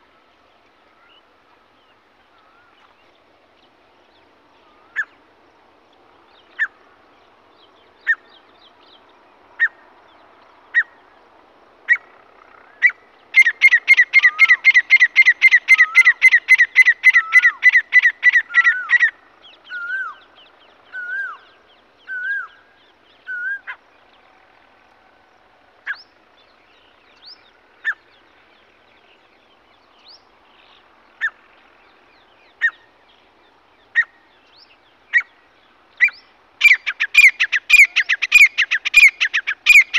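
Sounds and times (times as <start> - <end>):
francolin calling: 11.9 - 24.1, 25.9 - 39.9.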